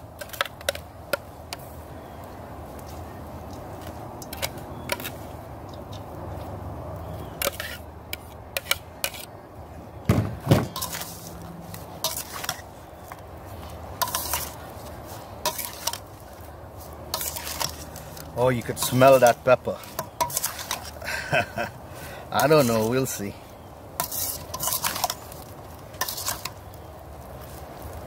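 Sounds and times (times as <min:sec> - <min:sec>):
metal spoon scraping glass bowl: 0:24.0 - 0:25.2.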